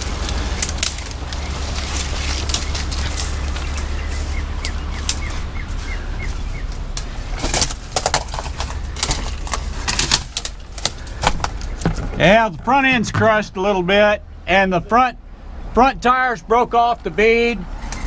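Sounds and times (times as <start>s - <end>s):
bird chirping: 0.0s - 7.5s
footsteps crunching through dry brush: 0.0s - 12.4s
low steady hum: 0.0s - 18.0s.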